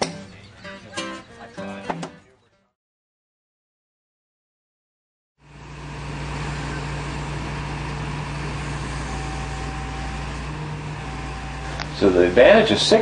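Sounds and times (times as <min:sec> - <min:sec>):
truck engine running: 0:05.4 - 0:13.0.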